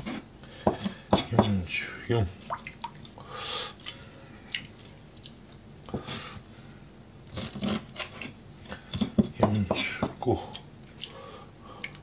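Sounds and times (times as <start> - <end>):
water splashing and dripping: 2.4 - 3.2.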